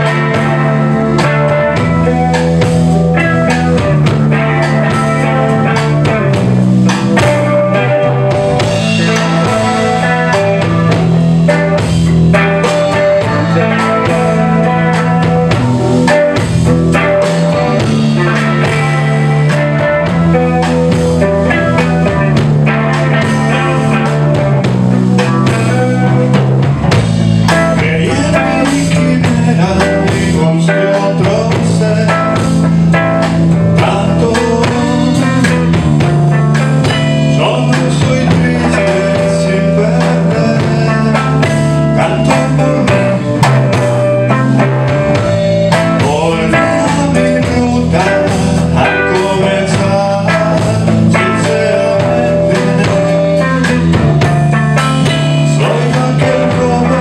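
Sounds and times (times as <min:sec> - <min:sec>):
drum kit: 0:00.0 - 0:57.0
electric bass: 0:00.0 - 0:57.0
electric guitar: 0:00.0 - 0:57.0.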